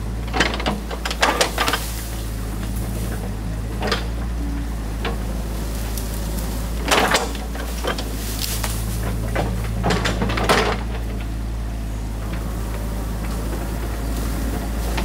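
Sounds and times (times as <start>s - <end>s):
excavator engine running: 0.0s - 15.0s
metallic clanks and rattles: 0.2s - 4.4s, 6.4s - 11.4s.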